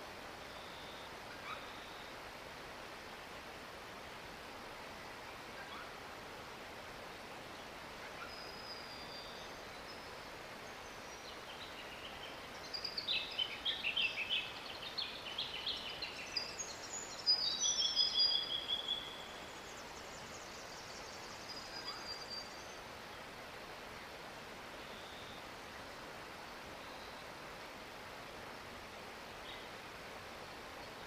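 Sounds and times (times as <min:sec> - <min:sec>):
faint hiss: 0:00.0 - 0:31.0
songbird chirping: 0:07.4 - 0:27.6.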